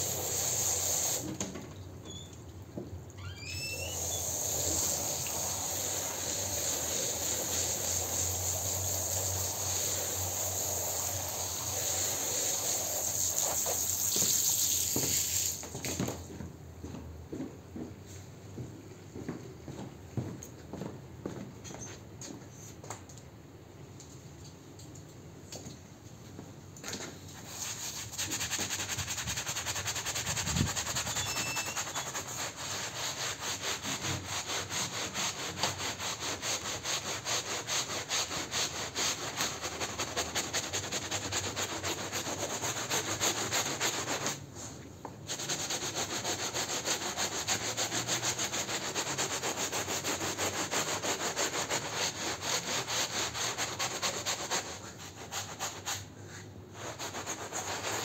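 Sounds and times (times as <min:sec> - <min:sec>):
scrub brush scrubbing carpet: 0:04.3 - 0:15.6, 0:27.4 - 0:44.4, 0:45.3 - 0:56.1, 0:56.7 - 0:58.0.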